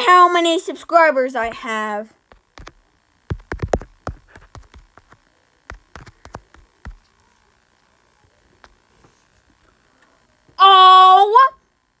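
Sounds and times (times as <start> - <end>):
fingertip taps on touchscreen: 2.6 - 7.0.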